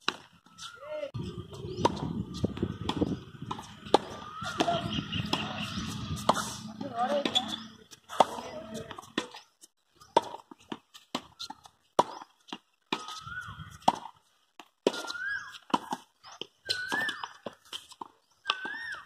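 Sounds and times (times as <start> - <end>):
ball bouncing: 1.6 - 9.4
racket hitting tennis ball: 1.8 - 9.4, 13.8 - 14.2.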